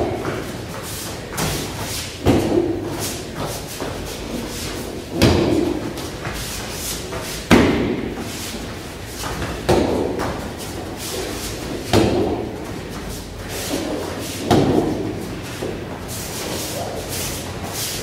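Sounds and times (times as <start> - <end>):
kicks thudding on kick pad: 1.4 - 2.8, 5.1 - 6.4, 7.5 - 8.2, 9.4 - 10.4.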